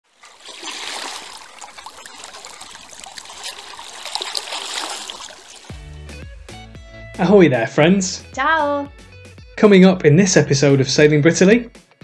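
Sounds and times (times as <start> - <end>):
seawater lapping and splashing: 0.0 - 6.0.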